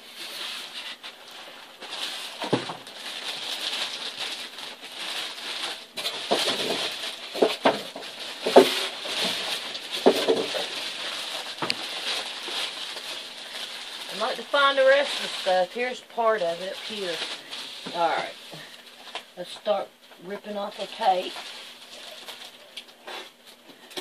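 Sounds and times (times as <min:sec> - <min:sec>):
foam packing squeaking: 0:00.0 - 0:23.4
plastic wrap crinkling: 0:00.0 - 0:24.0.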